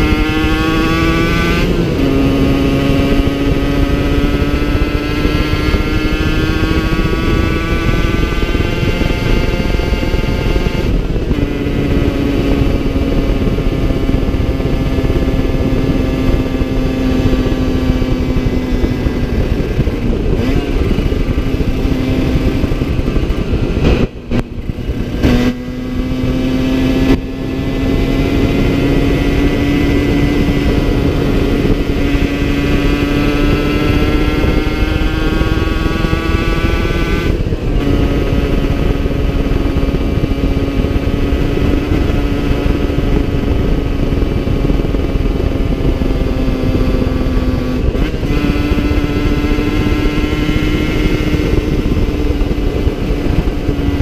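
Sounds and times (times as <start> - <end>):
two-stroke motorcycle engine: 0.0 - 54.0
wind rush: 0.0 - 54.0.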